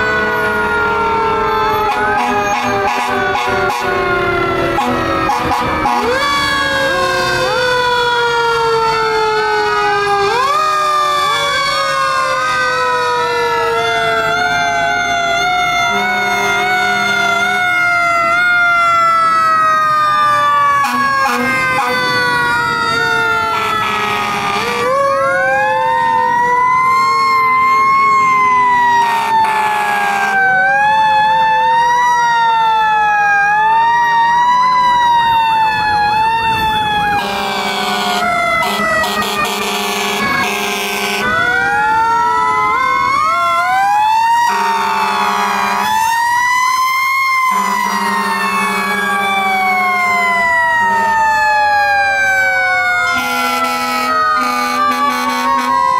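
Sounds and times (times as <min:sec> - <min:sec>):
rising and falling siren: 0:00.0 - 0:55.9
air horn blasts: 0:01.8 - 0:06.4, 0:15.9 - 0:17.6, 0:20.8 - 0:22.0, 0:23.5 - 0:25.0, 0:29.0 - 0:30.4, 0:37.2 - 0:41.4, 0:44.4 - 0:46.0, 0:47.5 - 0:49.2, 0:53.1 - 0:55.9.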